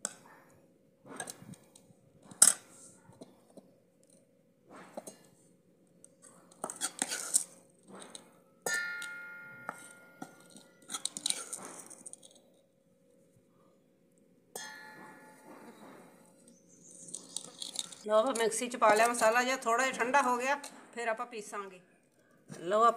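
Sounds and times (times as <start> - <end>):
metal ladle scraping pot: 6.5 - 12.3, 14.6 - 19.4
sharp metal clang: 8.6 - 10.3, 14.6 - 16.2.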